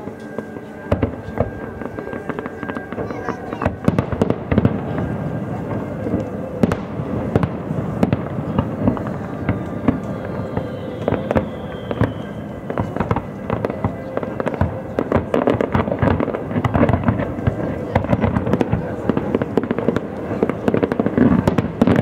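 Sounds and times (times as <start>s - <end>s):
fireworks bangs and crackling: 0.0s - 22.0s
faint falling whistle: 9.4s - 13.2s.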